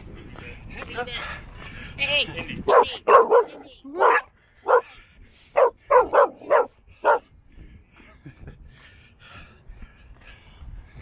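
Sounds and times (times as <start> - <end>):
dog barking: 2.7 - 4.9, 5.6 - 7.2.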